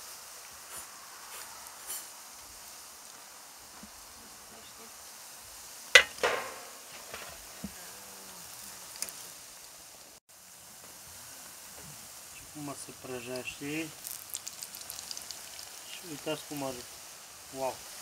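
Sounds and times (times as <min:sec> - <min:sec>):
dough sizzling in hot oil: 0:00.0 - 0:18.0
fork clinking against pan: 0:06.0 - 0:06.8.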